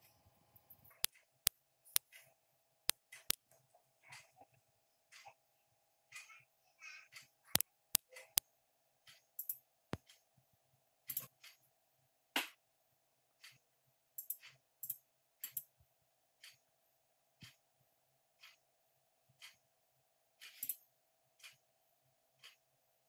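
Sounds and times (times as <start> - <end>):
computer mouse clicking: 7.2 - 8.4, 9.1 - 10.2, 14.2 - 15.7, 20.4 - 20.8.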